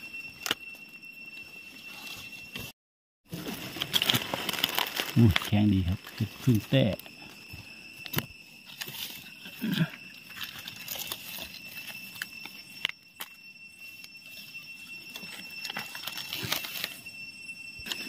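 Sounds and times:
high-pitched whine: 0.0s - 18.0s
dry leaves rustling and crackling: 3.3s - 6.9s, 8.7s - 12.8s, 15.1s - 17.0s
twigs clicking: 3.7s - 7.2s, 8.0s - 13.4s, 15.1s - 17.0s.

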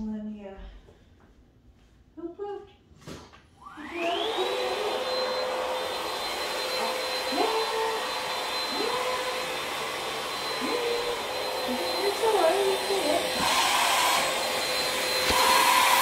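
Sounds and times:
stick vacuum whining: 3.6s - 16.0s.

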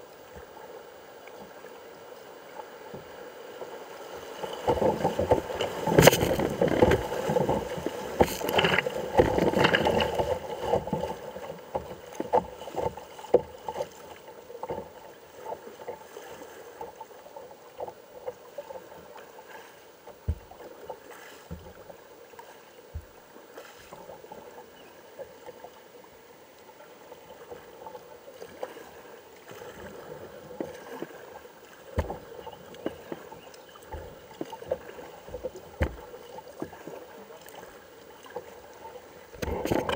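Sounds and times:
paddle splashes and drips: 0.0s - 39.9s
water flowing: 0.0s - 39.9s
dull knocks: 35.3s - 36.1s.

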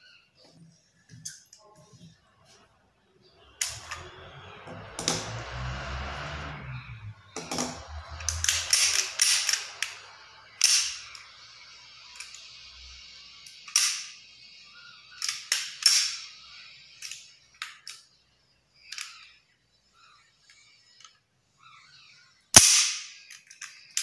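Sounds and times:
pistol metallic clicks: 13.6s - 14.2s, 15.2s - 16.3s.

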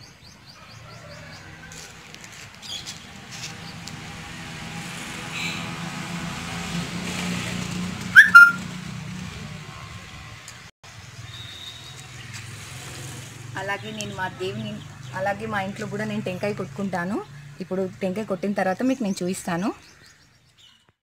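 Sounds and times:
vehicle engine hum: 1.7s - 18.4s
high-pitched squeal: 8.2s - 8.7s.

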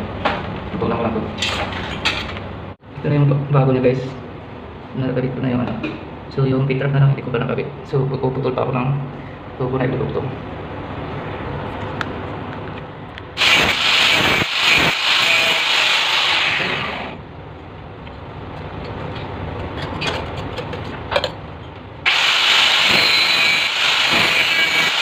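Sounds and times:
angle grinder cutting metal pipe: 13.4s - 17.2s, 22.1s - 25.0s.

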